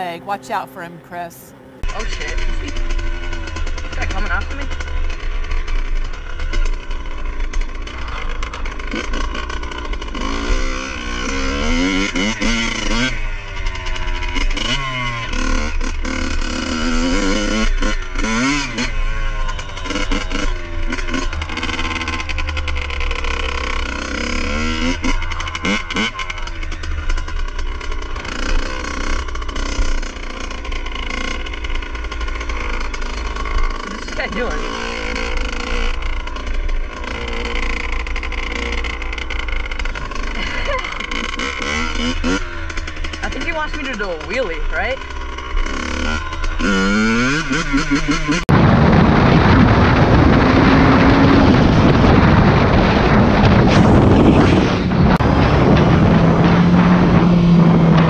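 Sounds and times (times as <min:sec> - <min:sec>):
dirt bike engine revving: 0:00.0 - 0:58.0
wind rumble on microphone: 0:48.4 - 0:58.0.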